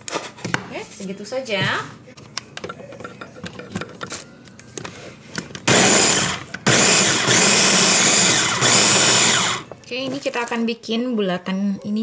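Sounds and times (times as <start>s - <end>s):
food chopper motor whirring: 5.7s - 9.7s.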